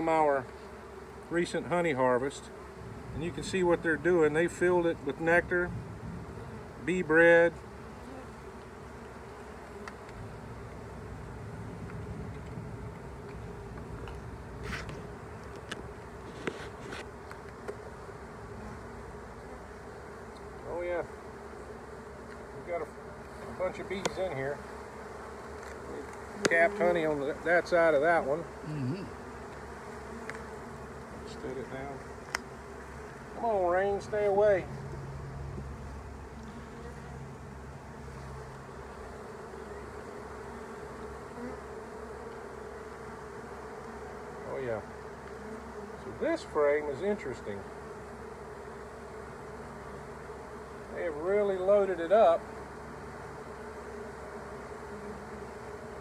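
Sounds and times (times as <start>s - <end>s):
bees buzzing: 0.0s - 56.0s
hive tool clicks: 30.2s - 30.5s, 32.2s - 32.5s.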